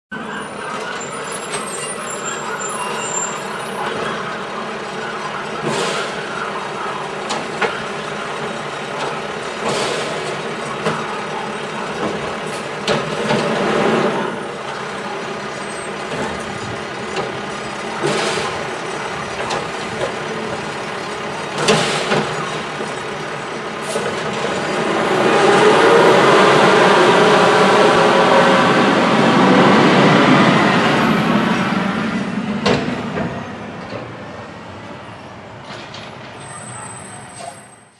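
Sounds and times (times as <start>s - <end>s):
garbage truck engine running: 0.4s - 37.8s.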